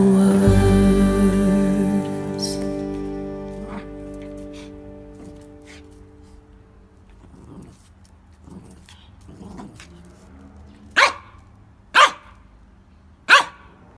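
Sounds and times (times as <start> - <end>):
dog growling softly: 7.1 - 10.6
dog barking: 11.0 - 11.4, 12.0 - 12.4, 13.3 - 13.7.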